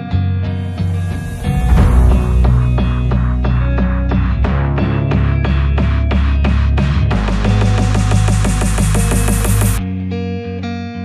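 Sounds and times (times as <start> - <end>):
electronic music with fast beat: 1.8 - 9.8.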